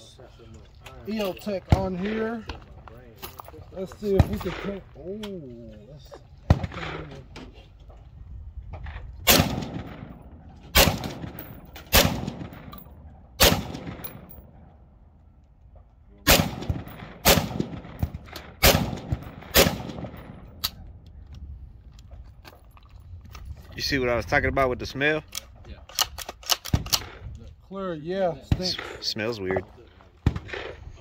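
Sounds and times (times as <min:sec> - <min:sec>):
rifle shots with echo: 0:09.2 - 0:14.6, 0:16.2 - 0:20.8.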